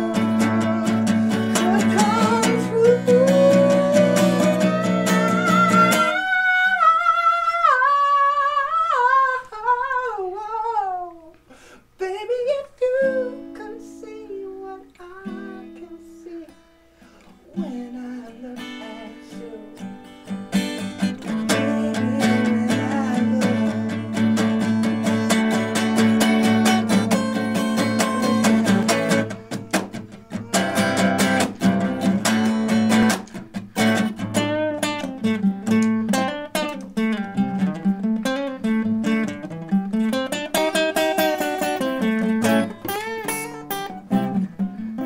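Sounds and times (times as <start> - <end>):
person singing: 0.0 - 11.4, 12.0 - 16.7, 17.4 - 20.0, 21.0 - 33.4, 40.5 - 45.0
acoustic guitar: 0.0 - 45.0.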